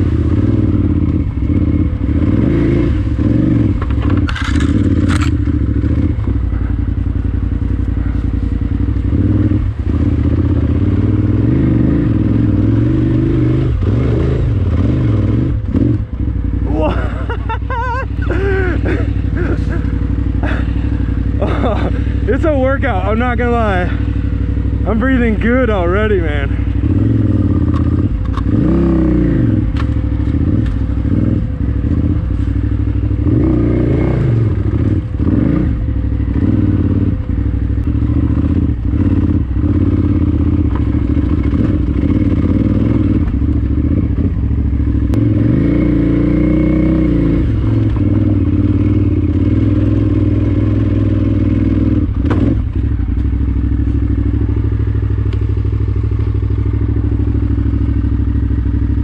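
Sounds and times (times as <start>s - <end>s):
motorcycle engine revving: 0.0s - 59.0s
bike clattering over rough ground: 3.8s - 5.6s.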